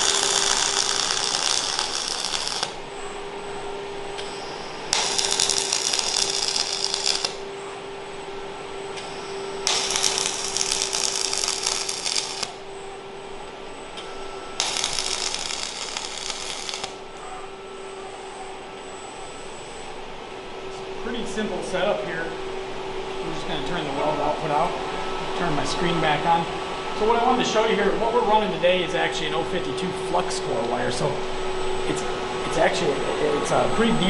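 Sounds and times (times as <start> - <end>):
welding arc crackling: 0.0 - 2.9, 4.2 - 7.5, 9.0 - 12.6, 14.6 - 17.0
steady hum: 0.0 - 34.0.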